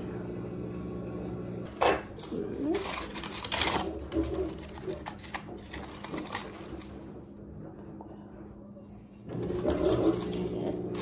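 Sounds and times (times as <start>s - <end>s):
paper packing wrap crinkling: 2.1s - 7.1s, 9.4s - 11.0s.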